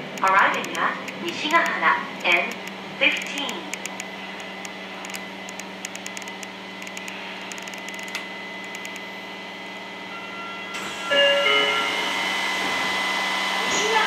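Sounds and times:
subway train electric hum: 0:00.0 - 0:14.0
whining tones shifting in pitch: 0:03.7 - 0:10.6.

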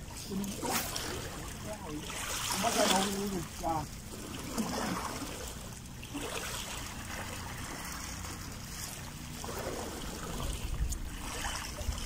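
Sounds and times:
water lapping on rocky shore: 0:00.0 - 0:12.0
wind rumbling on microphone: 0:09.5 - 0:12.0.

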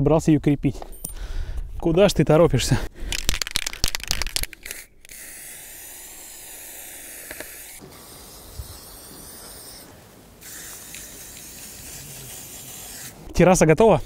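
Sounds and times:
spray paint can hissing: 0:03.4 - 0:09.8, 0:10.4 - 0:13.3.

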